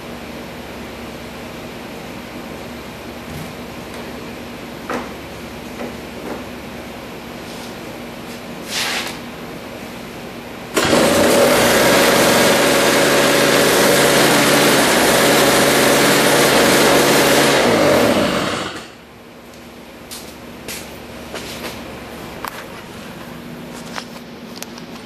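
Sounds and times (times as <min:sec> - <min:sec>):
two-stroke engine running: 0:10.7 - 0:19.0.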